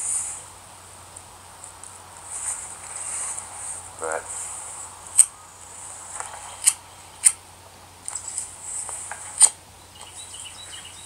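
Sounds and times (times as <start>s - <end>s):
sharp clicks: 6.2s - 7.4s.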